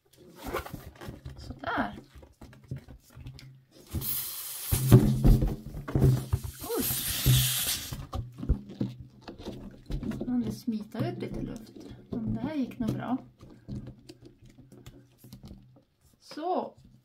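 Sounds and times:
air hissing from balloon: 0:03.9 - 0:05.2, 0:06.2 - 0:08.1
plastic bottle knocks: 0:04.8 - 0:06.6.

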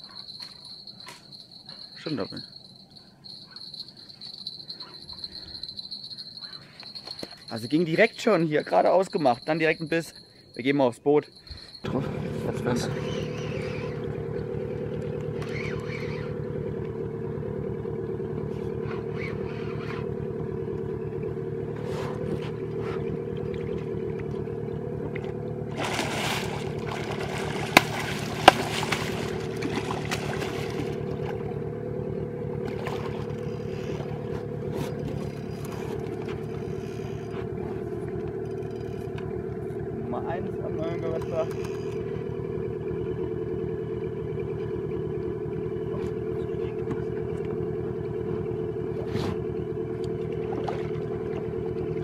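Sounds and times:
outboard motor running: 0:03.3 - 0:52.0
sharp clicks: 0:41.1 - 0:42.1.

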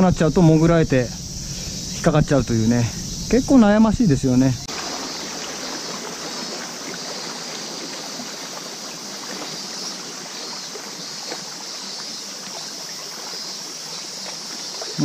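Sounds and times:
waves lapping against concrete: 0:04.7 - 0:15.0.

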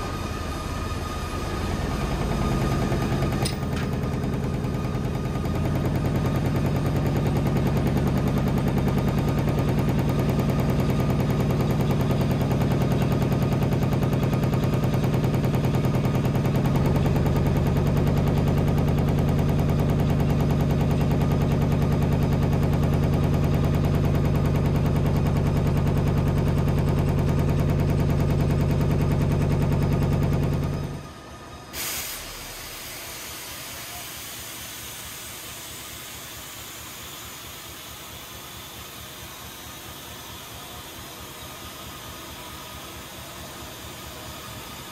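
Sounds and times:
air hissing: 0:31.7 - 0:42.0.

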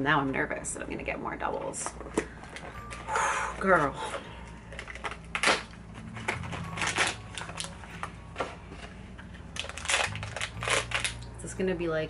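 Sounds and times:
plastic wrapper crinkling: 0:04.0 - 0:11.4.

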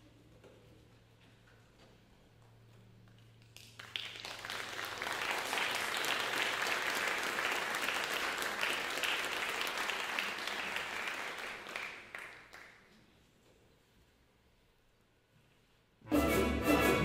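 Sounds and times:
audience applauding: 0:03.5 - 0:12.9.

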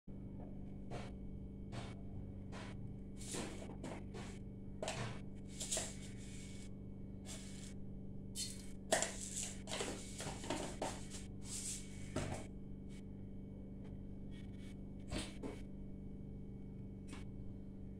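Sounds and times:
steady low hum: 0:00.1 - 0:17.9.

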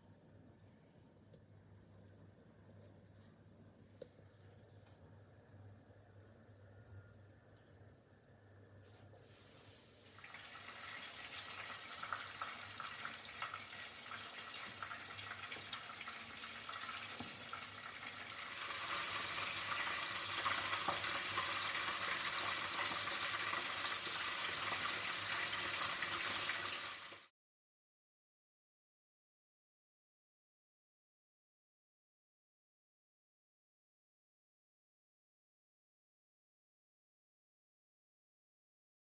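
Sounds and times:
food deep-frying in oil: 0:09.4 - 0:27.3.

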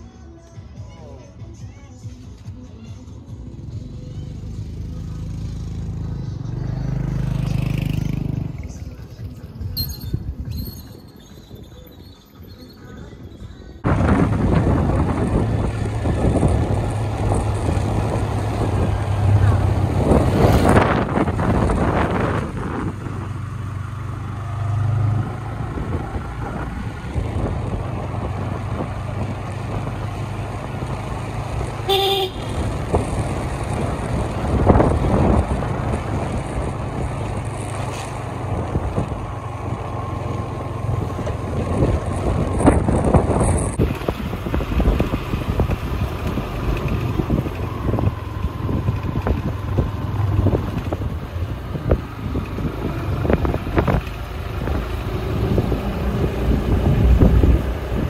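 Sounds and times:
wind rush: 0:13.8 - 0:23.8, 0:32.5 - 0:37.6, 0:40.9 - 0:58.0
vehicle engine running: 0:13.8 - 0:58.0
short horn beep: 0:31.9 - 0:32.6.

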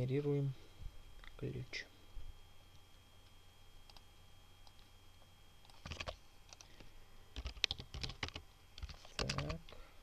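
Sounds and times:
keyboard typing: 0:05.6 - 0:06.8, 0:07.4 - 0:09.6.

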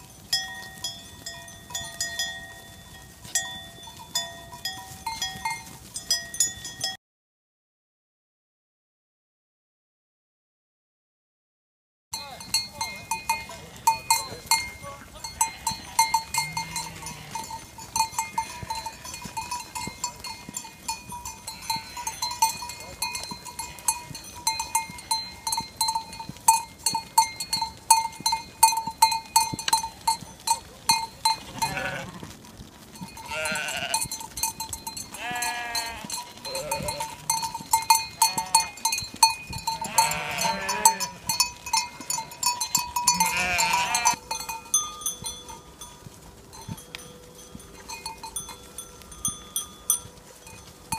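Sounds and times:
hooves clicking on road: 0:00.0 - 0:07.0, 0:12.2 - 0:50.9
sheep bleating: 0:12.4 - 0:17.6, 0:18.2 - 0:19.6, 0:21.5 - 0:25.3, 0:31.2 - 0:32.4, 0:33.1 - 0:34.1, 0:35.1 - 0:39.0, 0:39.7 - 0:44.2.

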